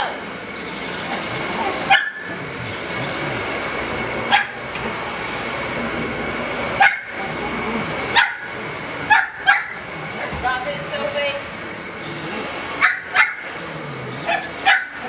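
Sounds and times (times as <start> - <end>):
vacuum cleaner whining: 0.0 - 15.0
dog barking sharply: 1.9 - 2.3, 9.1 - 9.8, 14.3 - 15.0.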